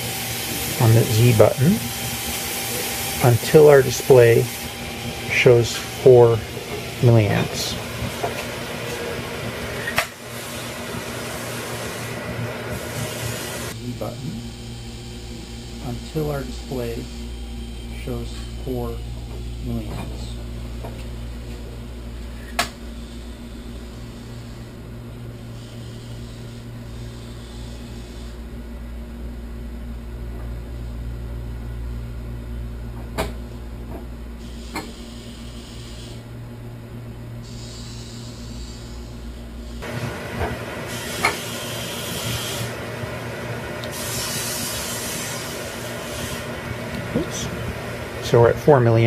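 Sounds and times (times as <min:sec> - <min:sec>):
loud hiss: 0:00.0 - 0:17.0, 0:37.4 - 0:39.2, 0:43.8 - 0:47.7
low steady hum: 0:13.7 - 0:41.0.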